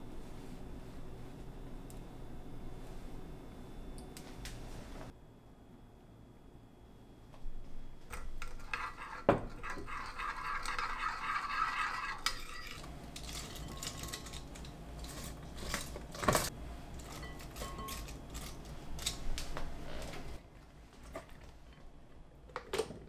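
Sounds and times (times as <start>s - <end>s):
spoon scraping ceramic bowl: 8.2s - 15.9s.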